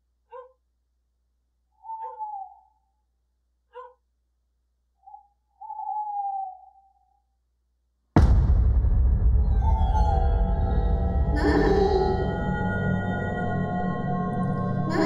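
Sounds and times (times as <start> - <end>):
animal crying: 1.8 - 2.8
sudden loud hit: 8.2 - 12.9
horror film score: 8.2 - 15.0.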